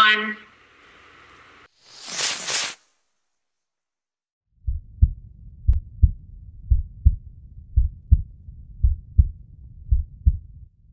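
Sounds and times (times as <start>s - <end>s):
heartbeat double thumps: 4.6s - 10.9s.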